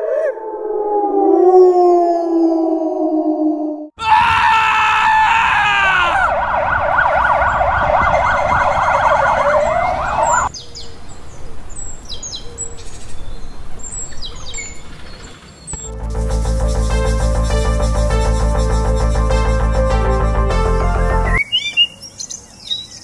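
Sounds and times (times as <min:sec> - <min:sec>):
electronic siren wailing: 0:05.5 - 0:10.5
birds chirping: 0:08.7 - 0:16.0, 0:21.2 - 0:23.0.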